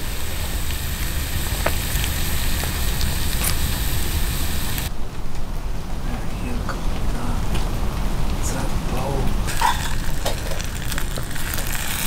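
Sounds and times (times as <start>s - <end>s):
sausages sizzling in a frying pan: 0.0s - 4.9s, 9.4s - 12.0s
low rumble: 0.0s - 12.0s.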